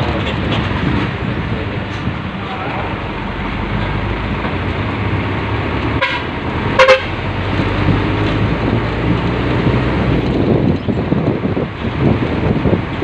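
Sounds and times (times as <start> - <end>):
vehicle engine and road noise: 0.0 - 13.0
car horn beeps: 6.0 - 7.2.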